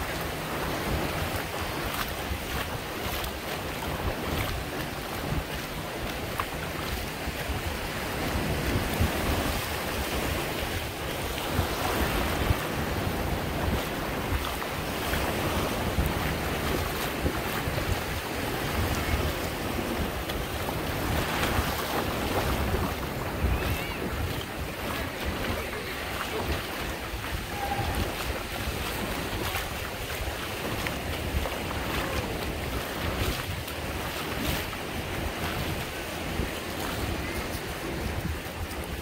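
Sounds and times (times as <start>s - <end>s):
small waves washing over sand: 0.0s - 39.0s
wind buffeting microphone: 0.0s - 39.0s.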